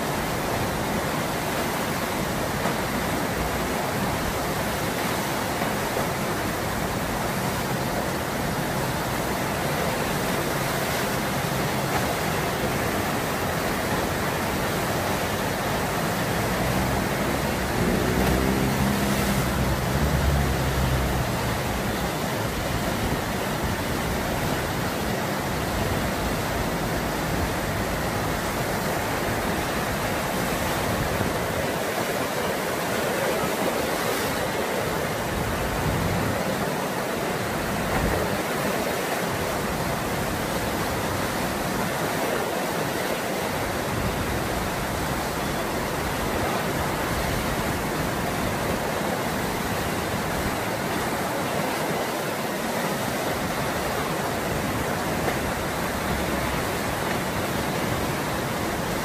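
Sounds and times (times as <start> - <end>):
rushing white water: 0.0 - 59.0.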